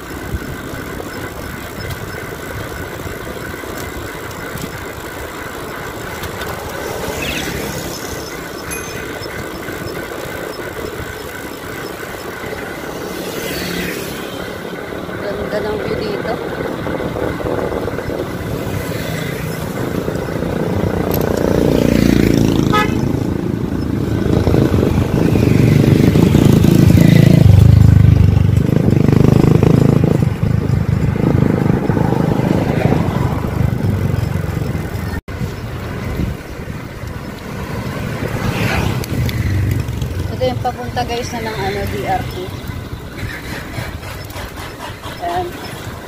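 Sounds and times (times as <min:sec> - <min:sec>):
traffic engines rumbling by: 0:00.0 - 0:46.0
heavy vehicle passing: 0:05.2 - 0:11.2, 0:12.1 - 0:46.0
car horn toot: 0:22.6 - 0:23.2.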